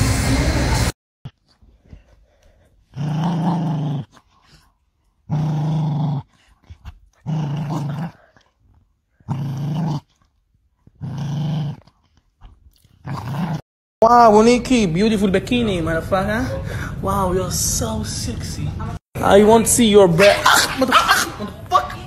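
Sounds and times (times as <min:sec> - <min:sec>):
dog growling: 0:01.3 - 0:13.6.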